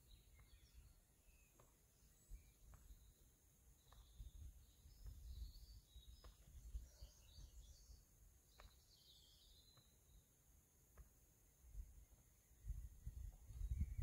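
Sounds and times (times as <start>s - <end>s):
faint birdsong: 0.0s - 14.0s
wind rumble on microphone: 3.9s - 8.0s, 12.6s - 14.0s.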